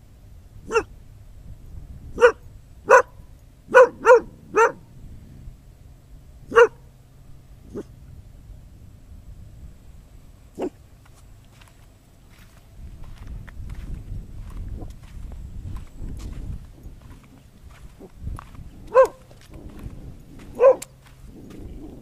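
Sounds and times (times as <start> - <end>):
dog barking: 0.7 - 0.9, 2.2 - 4.8, 6.5 - 6.9, 10.6 - 10.8, 18.9 - 19.3, 20.5 - 21.0.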